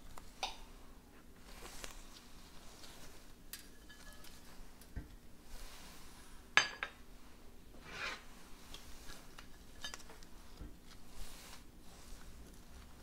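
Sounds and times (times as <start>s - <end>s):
utensil scraping dish: 7.8s - 8.3s.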